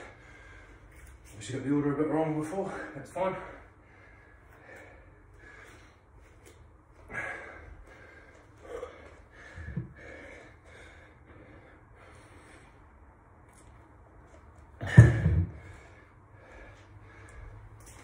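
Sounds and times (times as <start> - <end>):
man breathing hard: 0.0 - 1.4, 2.6 - 13.3, 14.8 - 18.0
dull thump: 14.8 - 15.7.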